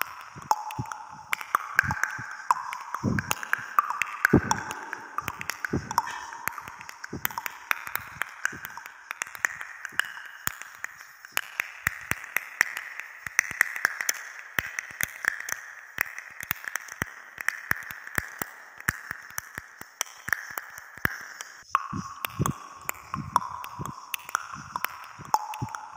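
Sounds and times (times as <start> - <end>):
faint steady hiss: 0.0 - 25.9
sharp clicks or taps: 4.3 - 7.5.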